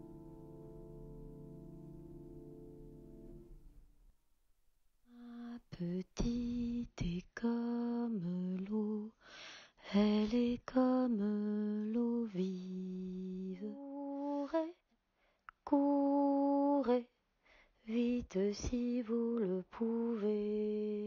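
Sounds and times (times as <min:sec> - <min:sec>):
person singing unaccompanied: 0:05.1 - 0:09.2, 0:09.8 - 0:14.8, 0:15.5 - 0:17.2, 0:17.9 - 0:21.0.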